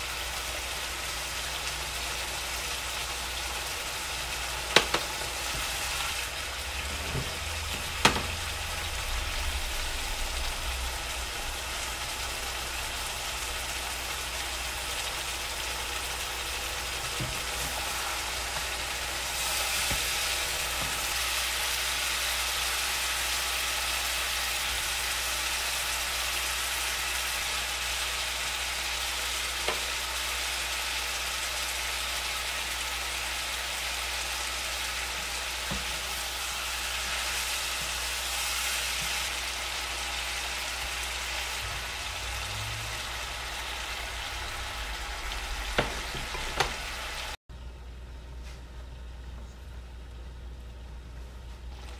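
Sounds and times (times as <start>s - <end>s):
chicken sizzling in oil: 0.0s - 47.4s
spatula knocking against pan: 4.7s - 5.1s, 8.0s - 8.4s.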